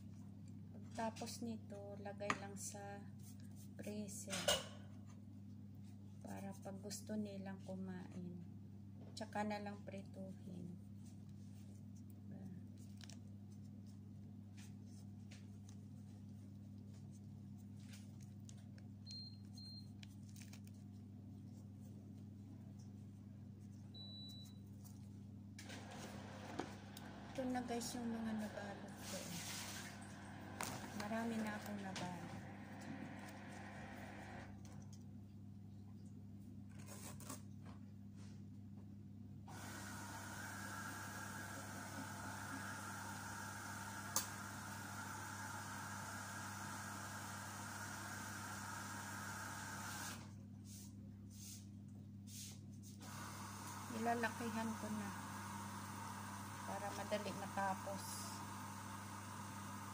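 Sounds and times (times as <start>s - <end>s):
steady low hum: 0.0s - 36.8s
rustling handling noise: 10.9s - 19.0s, 19.7s - 25.3s
rustling of thin wrappers: 19.9s - 21.1s.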